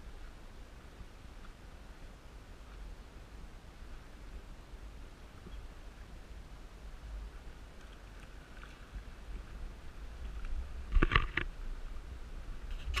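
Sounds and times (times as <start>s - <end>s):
wind rumble on microphone: 0.0s - 13.0s
water lapping and splashing: 7.4s - 11.4s.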